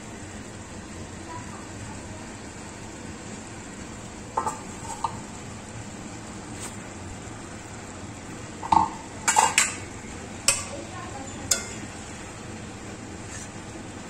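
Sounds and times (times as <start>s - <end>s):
metal spatula scraping a pan: 13.2s - 13.6s.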